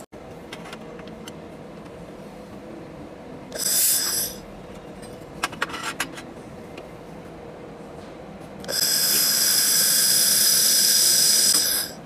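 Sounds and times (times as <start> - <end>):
faint steady hum: 0.0 - 12.0
laser welder hiss: 8.7 - 12.0.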